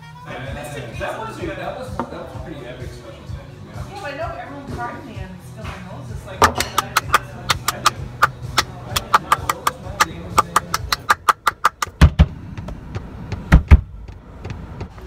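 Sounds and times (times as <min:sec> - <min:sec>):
hands clapping: 0:06.4 - 0:12.0
deep heavy thumps: 0:10.8 - 0:14.0.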